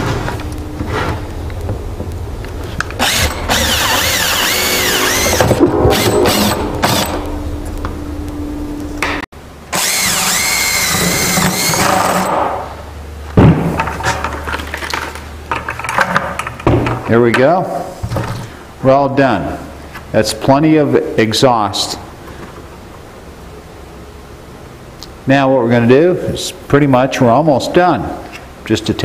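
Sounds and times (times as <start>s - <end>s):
cordless drill whining: 3.0s - 7.0s, 9.7s - 12.3s.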